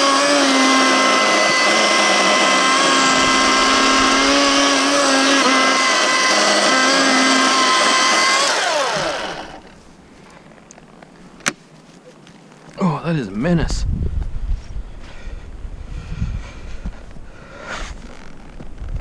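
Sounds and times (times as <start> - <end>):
electric chainsaw cutting log: 0.0 - 9.8
motor winding down whine: 0.0 - 9.8.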